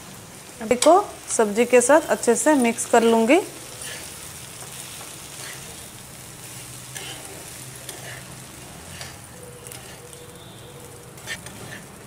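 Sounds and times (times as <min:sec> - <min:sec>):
low sizzle of frying: 0:00.0 - 0:12.0
spatula scraping a pan: 0:03.0 - 0:10.6, 0:11.2 - 0:12.0.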